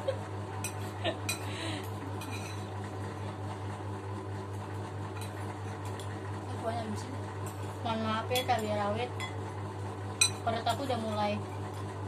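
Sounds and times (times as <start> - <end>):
steady low hum: 0.0 - 12.0
metal spoons clinking on ceramic bowls: 0.6 - 2.7, 8.3 - 9.4, 10.2 - 11.0.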